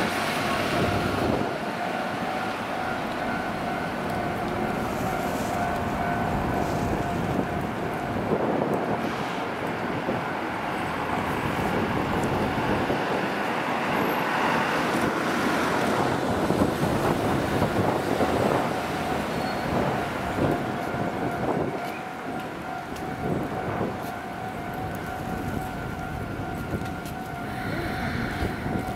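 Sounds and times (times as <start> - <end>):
street and railway noise: 0.0 - 28.9
train approaching slowly: 0.0 - 28.9
wind buffeting microphone: 3.1 - 28.9.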